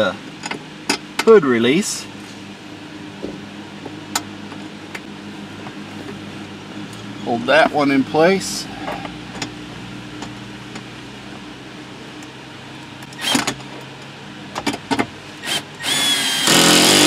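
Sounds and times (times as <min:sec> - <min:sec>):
cordless drill motor whining: 0:15.4 - 0:17.0.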